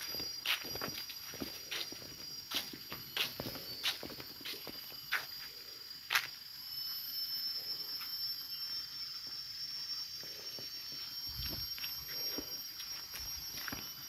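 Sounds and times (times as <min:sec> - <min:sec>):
footsteps on leafy ground: 0:00.0 - 0:06.4, 0:10.9 - 0:14.0
insects droning: 0:00.0 - 0:14.0.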